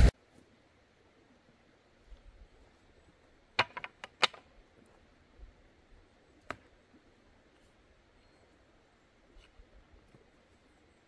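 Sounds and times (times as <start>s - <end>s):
firewood knocking on ground: 3.6s - 4.4s.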